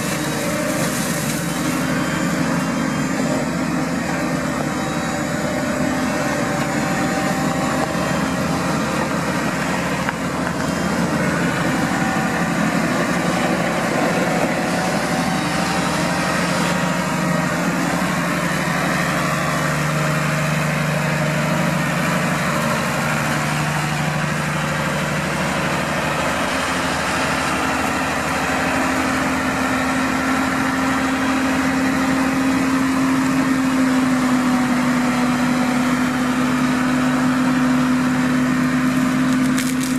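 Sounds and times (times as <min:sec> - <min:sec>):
hedge cutter trimming: 0:00.0 - 0:24.8, 0:37.6 - 0:39.9
tractor diesel engine running: 0:00.0 - 0:39.9.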